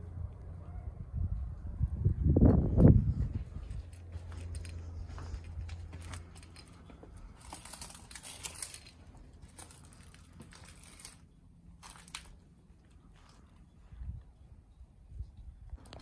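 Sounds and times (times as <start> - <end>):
crackles clicks and rustles: 2.4 - 16.0
footsteps crunching over rubble: 2.7 - 14.2.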